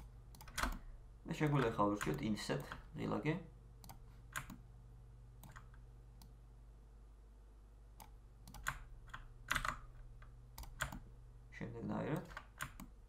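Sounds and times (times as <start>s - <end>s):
keyboard and mouse clicks: 0.0s - 2.9s, 3.8s - 4.6s, 5.4s - 6.4s, 8.0s - 11.1s, 12.1s - 13.0s
steady low hum: 0.0s - 13.0s.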